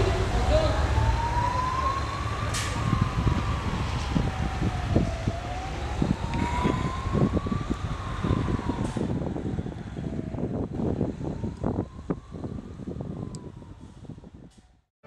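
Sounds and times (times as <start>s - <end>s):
siren wailing: 0.0s - 14.5s.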